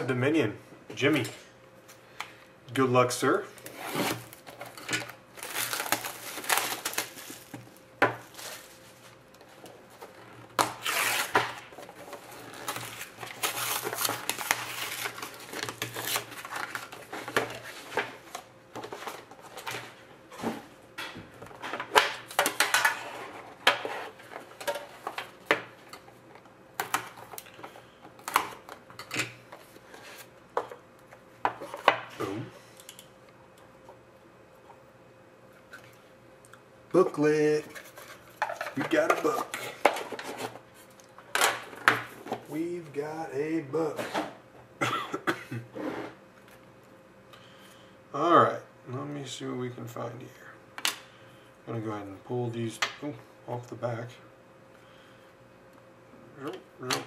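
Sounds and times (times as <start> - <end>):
shrink wrap crinkling and tearing: 3.6 - 9.4, 10.0 - 17.9.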